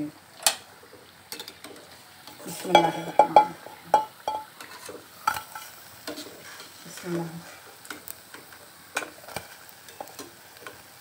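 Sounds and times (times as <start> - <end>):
oil sizzling: 0.0 - 11.0
metal skimmer scraping a pan: 1.3 - 8.0.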